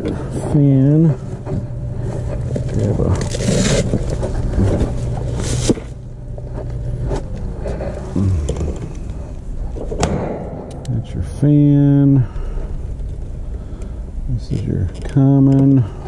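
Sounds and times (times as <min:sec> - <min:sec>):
rustling and handling noises: 0:00.0 - 0:10.0
low machine hum: 0:00.0 - 0:16.0.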